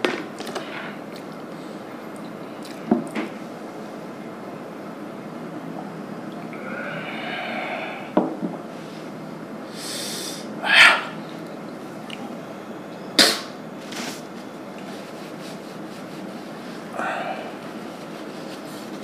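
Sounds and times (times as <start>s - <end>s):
man breathing out: 6.5s - 8.2s, 9.7s - 11.2s, 16.9s - 17.6s
sharp burst of breath: 6.6s - 8.2s, 9.7s - 11.2s
hiss of air drawn in: 9.7s - 11.1s.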